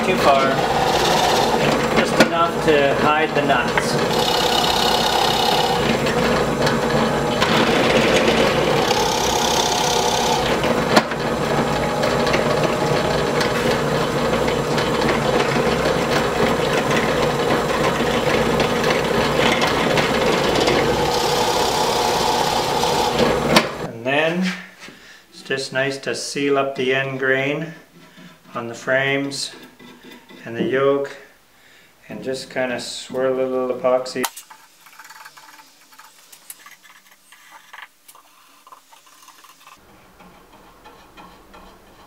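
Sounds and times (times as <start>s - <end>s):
drill press boring wood: 0.0s - 23.9s.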